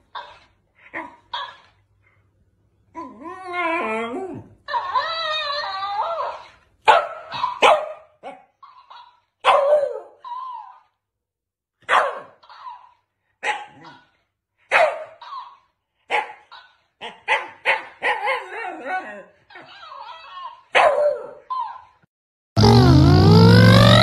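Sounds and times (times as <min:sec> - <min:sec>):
dog barking: 0:06.8 - 0:10.2, 0:11.8 - 0:14.1, 0:14.7 - 0:18.6, 0:20.3 - 0:21.8.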